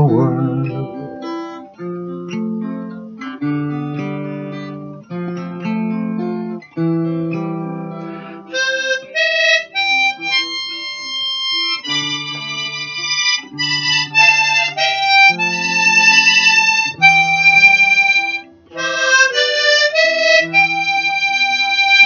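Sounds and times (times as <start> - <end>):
harmonica playing a tune: 0.0 - 2.0, 8.0 - 22.0
acoustic guitar strumming chords: 0.0 - 21.8.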